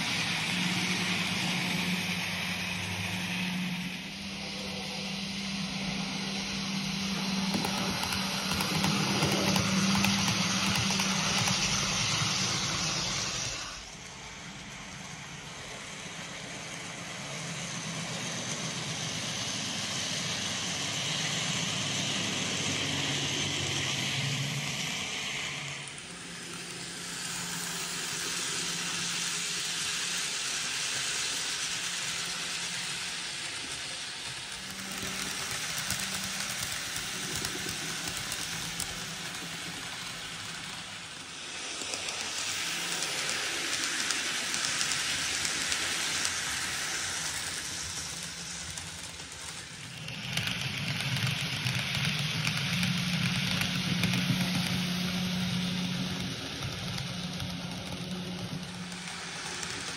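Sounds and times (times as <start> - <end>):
faint motor hum: 0.0 - 59.9
model train wheels rolling: 0.0 - 59.9.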